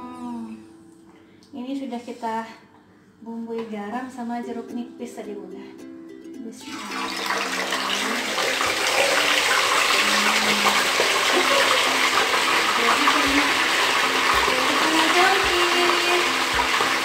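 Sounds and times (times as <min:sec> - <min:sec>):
fish sizzling in hot oil: 0:06.9 - 0:17.0.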